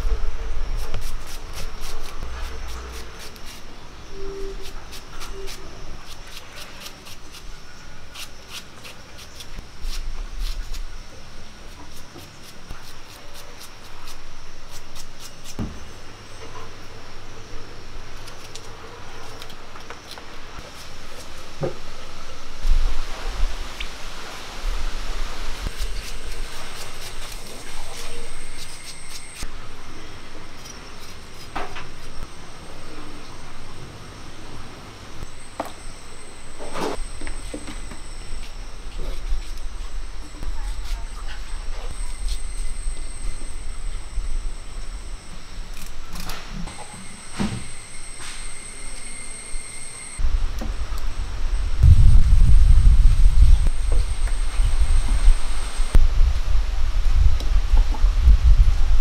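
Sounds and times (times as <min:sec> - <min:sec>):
knife slicing onions: 0:04.6 - 0:07.5.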